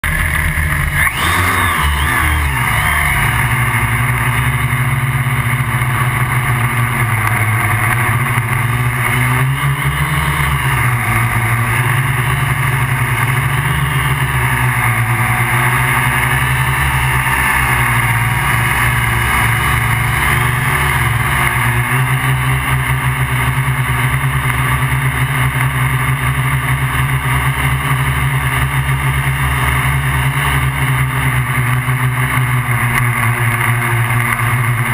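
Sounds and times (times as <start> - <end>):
quadcopter motors buzzing: 0.1 - 34.9.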